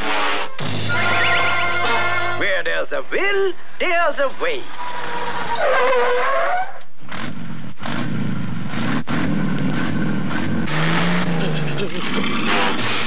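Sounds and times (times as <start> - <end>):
gliding horn-like tones: 5.1 - 6.8
car engines rushing past: 7.1 - 13.0.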